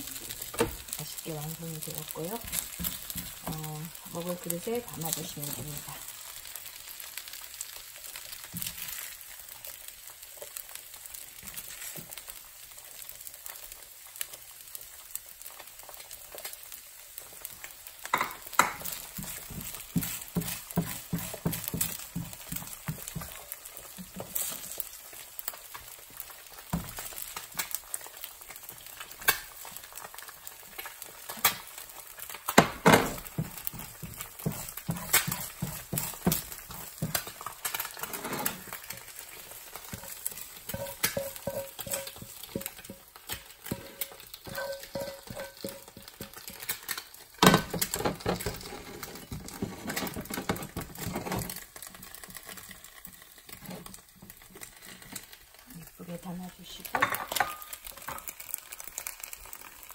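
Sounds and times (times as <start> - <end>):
food sizzling in frying pans: 0.0 - 59.9
spatula scraping a frying pan: 18.1 - 25.5, 33.1 - 47.0, 47.7 - 55.4.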